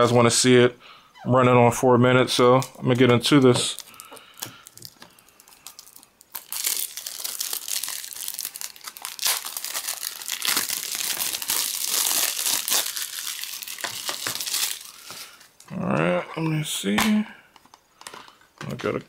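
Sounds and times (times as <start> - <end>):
plastic shrink-wrap crinkling: 2.3 - 15.6
plastic wrap clicking: 2.5 - 14.9.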